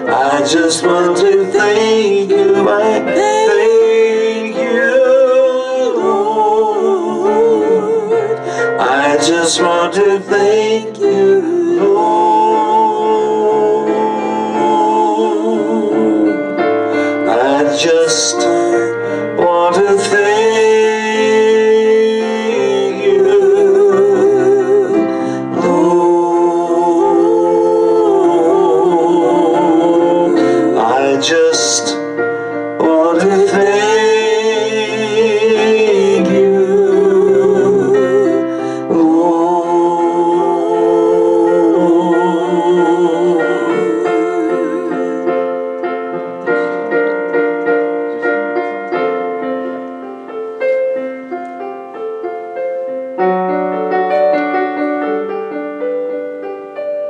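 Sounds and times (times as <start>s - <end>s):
piano accompaniment: 0.0s - 57.0s
woman singing with vibrato: 25.6s - 31.2s, 35.7s - 45.4s.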